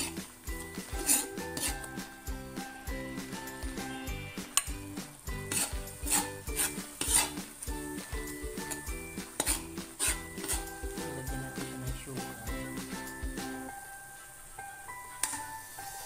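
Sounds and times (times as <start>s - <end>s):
metal spoon scraping a wok: 0.0s - 1.9s, 3.9s - 7.6s, 8.6s - 10.8s
background music with beat: 0.0s - 14.0s
food sizzling: 0.0s - 16.0s.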